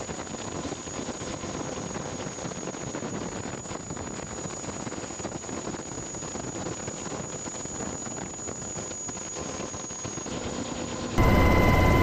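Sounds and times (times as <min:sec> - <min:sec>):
thin high whine: 0:06.3 - 0:12.0.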